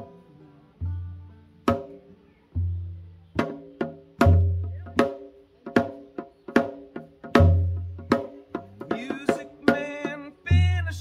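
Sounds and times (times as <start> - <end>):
plucked banjo and guitar: 0.0 - 5.5, 7.3 - 11.0
drum rim strikes: 1.6 - 11.0
deep drum booms: 2.6 - 11.0.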